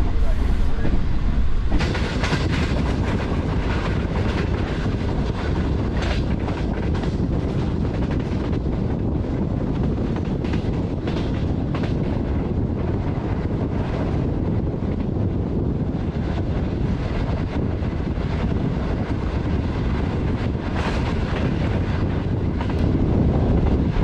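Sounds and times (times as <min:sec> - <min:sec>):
train rumbling along track: 0:00.0 - 0:24.0
wheels clacking over rail joints: 0:00.8 - 0:08.8.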